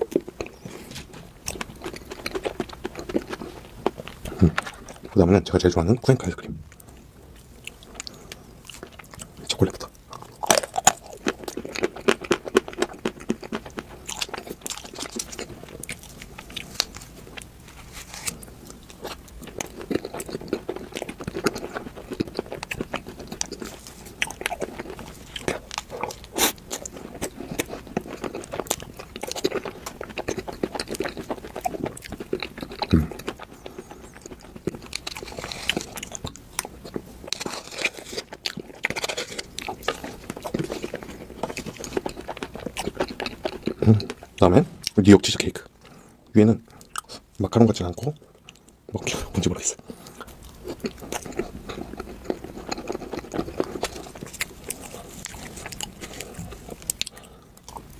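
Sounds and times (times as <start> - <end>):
chewing with wet mouth smacks: 18.7 - 45.0, 49.8 - 57.9.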